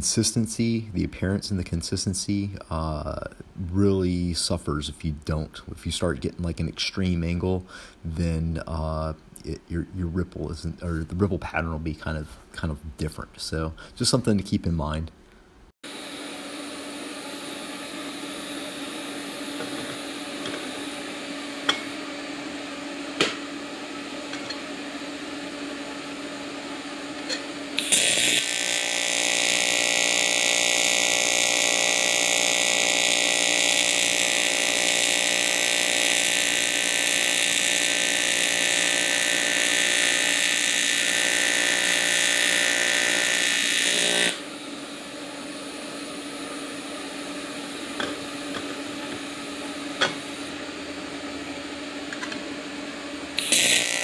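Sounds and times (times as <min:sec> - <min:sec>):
steady hum: 0:00.0 - 0:54.0
welding arc buzzing: 0:15.9 - 0:54.0.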